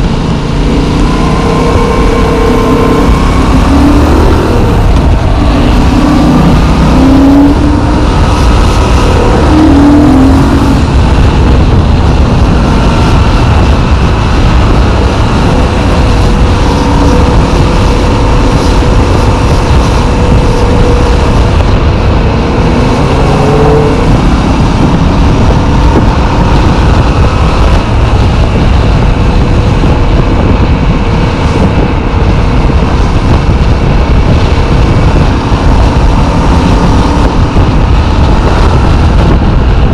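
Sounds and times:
motorcycle engine running: 0.0s - 39.9s
wind rushing on microphone: 0.0s - 39.9s.

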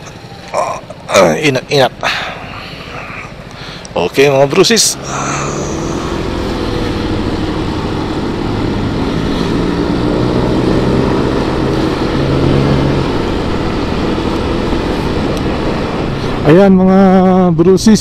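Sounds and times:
motorcycle engine hum: 0.0s - 18.0s
wind noise on microphone: 11.8s - 16.5s.

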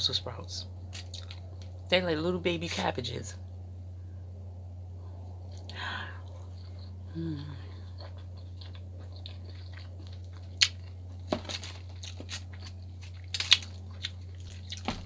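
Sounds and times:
closed-mouth hum: 0.0s - 15.0s
steady low hum: 0.0s - 15.0s
wet chewing: 0.9s - 1.8s, 5.4s - 15.0s.

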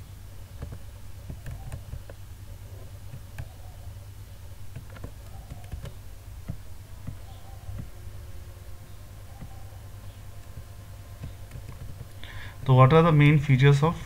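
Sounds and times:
low steady hum: 0.0s - 14.0s
mouse and keyboard clicks: 0.6s - 2.2s, 4.7s - 8.0s, 9.3s - 9.7s, 10.4s - 12.1s.

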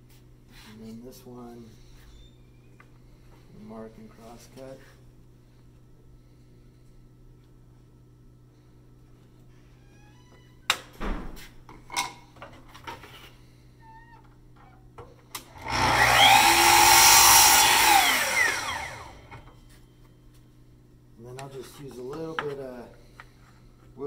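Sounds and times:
miter saw motor whine: 15.5s - 19.5s.

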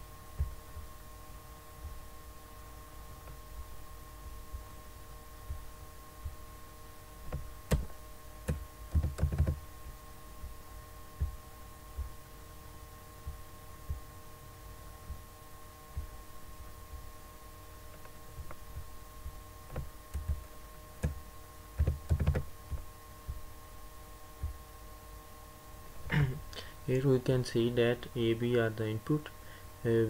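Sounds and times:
steady electrical hum: 0.0s - 30.0s
computer keyboard typing: 8.5s - 9.6s, 19.7s - 20.4s, 21.8s - 22.5s.

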